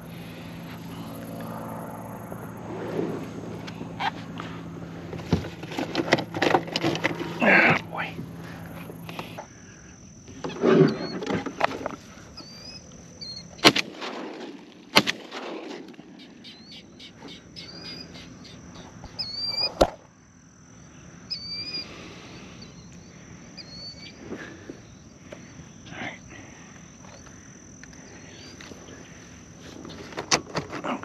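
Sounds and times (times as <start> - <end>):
high insect buzz: 0.0 - 31.0
small birds chirping: 12.2 - 13.6, 16.2 - 19.8, 20.7 - 30.1
shotgun shots: 13.6 - 16.2.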